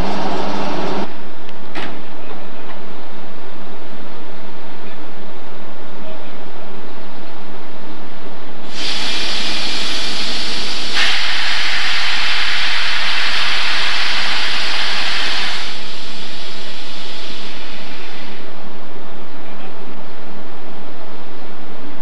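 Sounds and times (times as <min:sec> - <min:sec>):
compressed air hissing: 0:08.6 - 0:18.6.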